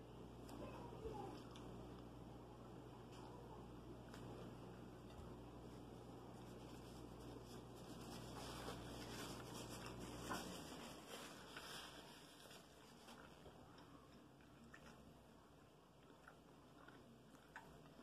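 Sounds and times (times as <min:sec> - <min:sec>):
low background hum: 0:00.0 - 0:18.0
paper napkin rustling: 0:05.6 - 0:13.3.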